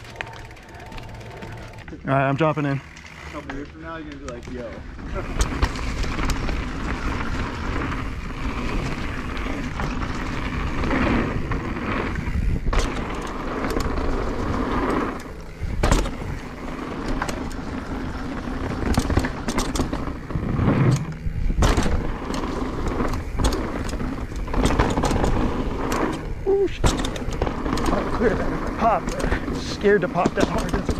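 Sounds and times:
bike knocks and rattles: 0:00.0 - 0:30.9
bike tyres rumbling over gravel: 0:00.0 - 0:30.9.

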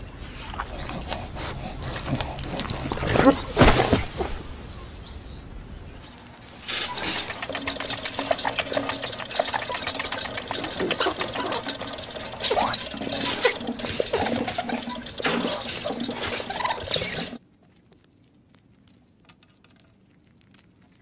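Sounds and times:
hamster wheel rattling: 0:06.6 - 0:17.4.

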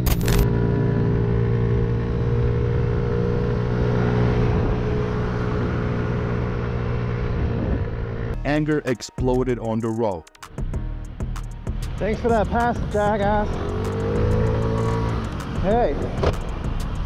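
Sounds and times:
wind and road noise: 0:00.0 - 0:08.4, 0:10.6 - 0:17.0
motorcycle engine running: 0:12.0 - 0:17.0.

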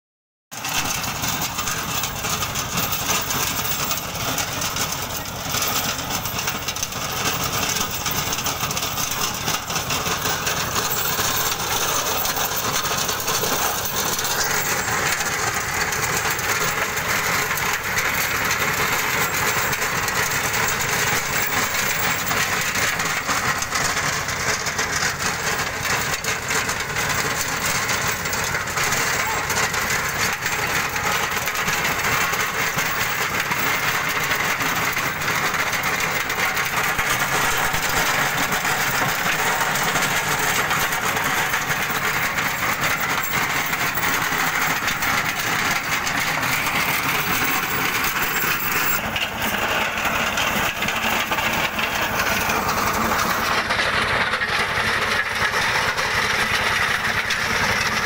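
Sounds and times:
diesel engine running under load: 0:00.5 - 0:58.0
rotavator churning soil: 0:00.6 - 0:58.0.

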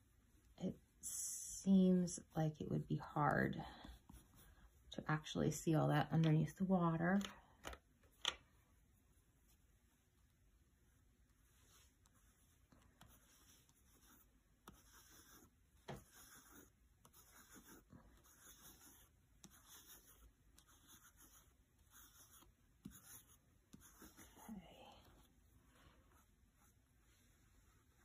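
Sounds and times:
crayon scratching on paper: 0:11.5 - 0:25.3.

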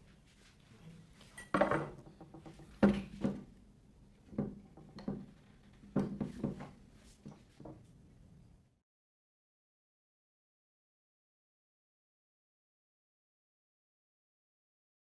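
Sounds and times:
metal stand knocks and clicks: 0:01.4 - 0:03.5.

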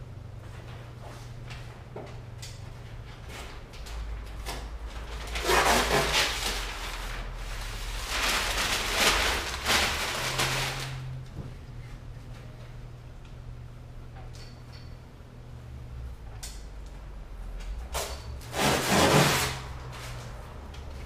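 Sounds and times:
paper sheet rustling and crackling: 0:03.4 - 0:11.2
low steady hum: 0:06.4 - 0:18.5.

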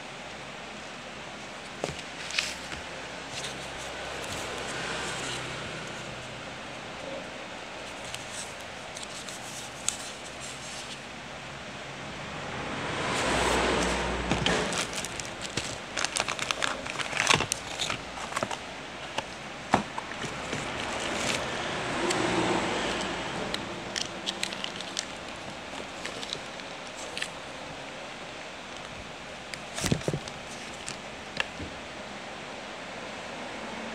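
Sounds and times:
paper and plastic rustling: 0:01.6 - 0:06.3, 0:07.8 - 0:11.1, 0:13.1 - 0:21.7, 0:23.9 - 0:27.8, 0:28.7 - 0:31.8
small sharp clicks and crackles: 0:23.9 - 0:27.4.

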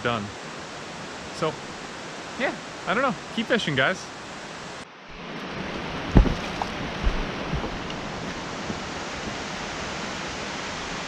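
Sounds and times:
river water rushing: 0:00.0 - 0:11.0
footsteps on dirt trail: 0:06.1 - 0:09.5.

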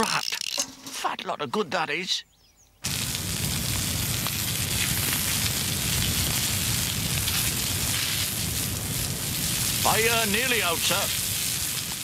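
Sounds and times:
fire hose water jet hissing: 0:02.9 - 0:12.0.

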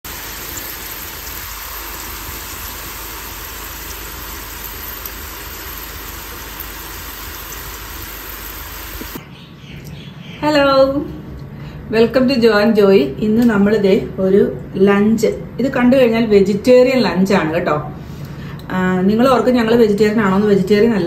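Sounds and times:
food sizzling in hot oil: 0:00.0 - 0:09.2.

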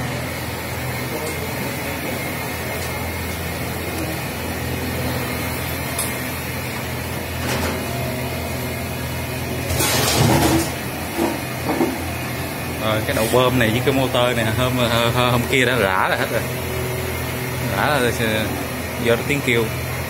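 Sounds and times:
machinery humming: 0:00.0 - 0:20.0.

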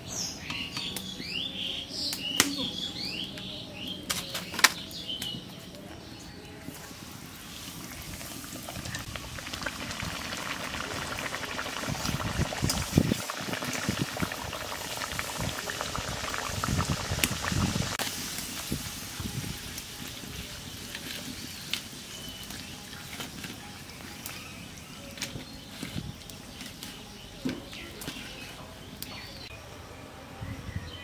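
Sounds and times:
oil sizzling while deep-frying: 0:06.7 - 0:29.3.

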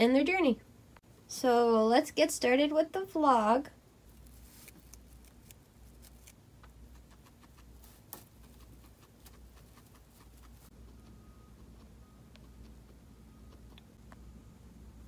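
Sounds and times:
guinea pig chewing hay: 0:04.0 - 0:15.0.

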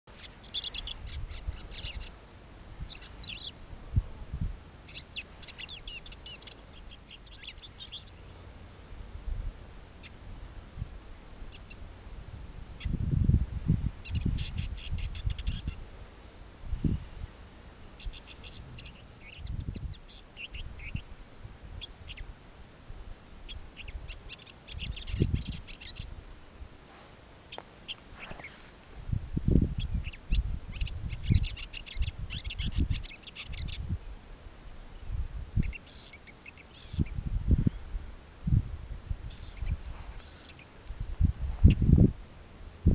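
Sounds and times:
bird scratchy chattering song: 0:00.1 - 0:02.2, 0:14.0 - 0:15.8, 0:18.0 - 0:21.0, 0:23.5 - 0:26.1, 0:27.5 - 0:28.6, 0:29.8 - 0:33.8, 0:39.3 - 0:40.7
shrike chirping and twittering: 0:00.1 - 0:02.2, 0:02.9 - 0:03.6, 0:04.9 - 0:08.4, 0:11.5 - 0:11.8, 0:14.0 - 0:15.8, 0:18.0 - 0:21.1, 0:23.5 - 0:26.1, 0:29.8 - 0:33.8, 0:35.6 - 0:37.8, 0:39.3 - 0:40.7.

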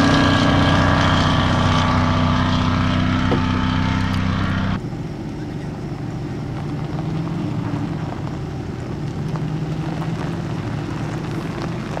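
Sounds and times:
engine humming: 0:00.0 - 0:12.0.

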